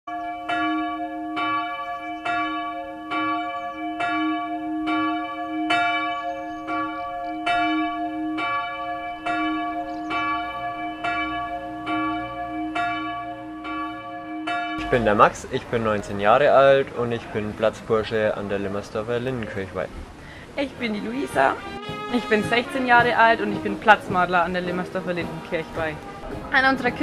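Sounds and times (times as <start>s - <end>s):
church bell tolling: 0.1s - 16.4s.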